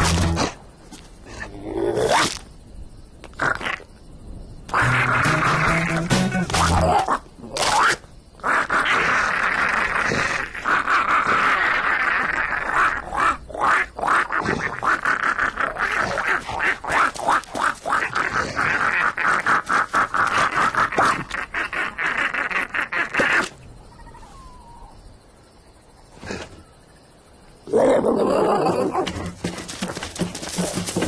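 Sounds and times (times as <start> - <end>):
cartoon toads croaking: 3.2 - 4.0, 4.7 - 25.0.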